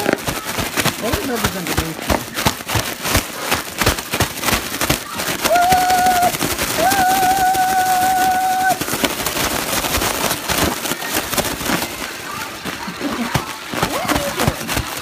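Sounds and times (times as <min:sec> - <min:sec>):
balloon crackling and scratching: 0:00.0 - 0:15.0
balloon high squeals: 0:05.4 - 0:09.1.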